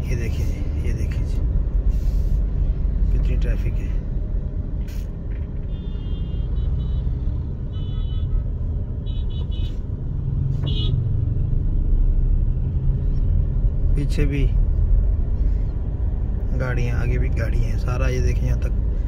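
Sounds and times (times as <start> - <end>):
traffic rumble inside car: 0.0 - 19.0
short high car horn beeps: 5.6 - 7.1.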